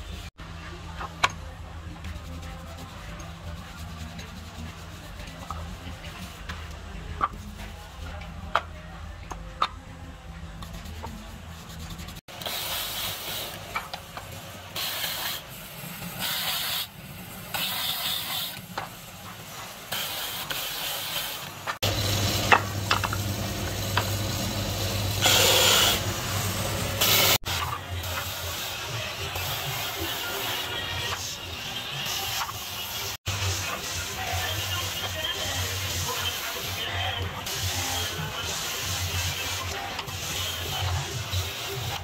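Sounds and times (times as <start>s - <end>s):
wood on sanding disc hiss: 14.8s - 18.6s
sander motor hum: 21.8s - 27.4s.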